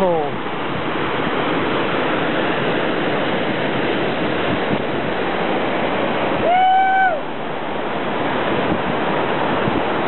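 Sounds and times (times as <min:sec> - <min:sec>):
whitewater rushing: 0:00.0 - 0:10.0.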